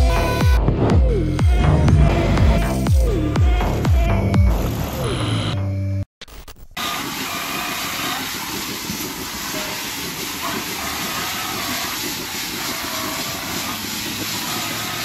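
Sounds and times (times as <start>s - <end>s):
milking equipment hissing: 6.8s - 15.0s.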